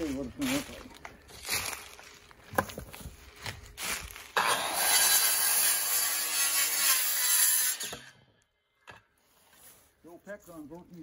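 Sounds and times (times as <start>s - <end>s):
power saw cutting wood: 4.3s - 8.2s.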